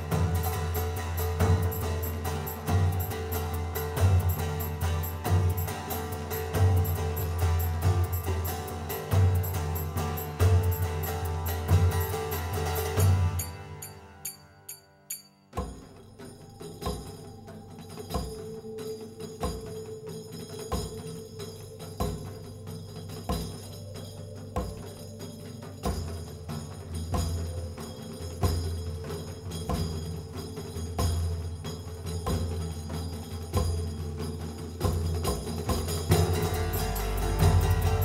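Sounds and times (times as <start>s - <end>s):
hand drum strikes: 0.0s - 14.4s, 25.8s - 38.0s
plucked lute: 0.0s - 14.5s, 33.5s - 38.0s
tabla: 0.0s - 38.0s.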